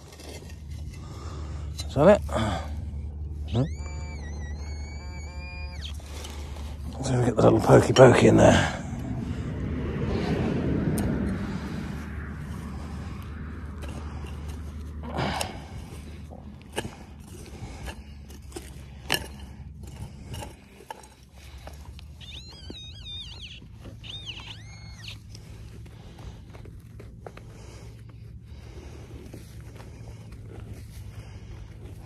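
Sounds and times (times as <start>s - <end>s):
metal tool scraping soil: 0.0s - 2.3s, 11.0s - 26.2s.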